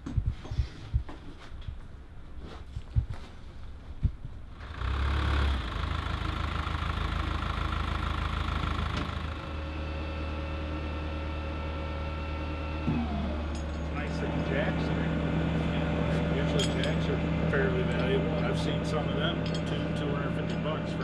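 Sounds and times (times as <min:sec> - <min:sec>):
truck engine idling: 0:04.6 - 0:21.0.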